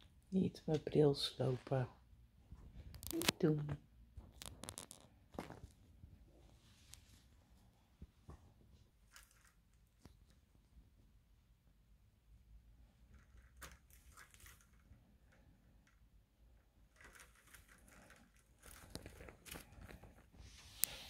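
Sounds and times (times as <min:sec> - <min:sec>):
parrot scratching and clicking on rope: 0:04.3 - 0:05.2, 0:13.1 - 0:16.0, 0:16.8 - 0:20.2.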